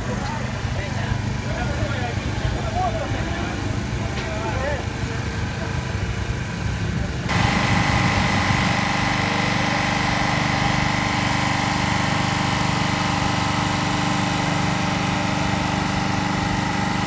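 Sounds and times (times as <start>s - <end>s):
steady whine: 0.0s - 17.0s
small engine pulsing: 7.3s - 17.0s.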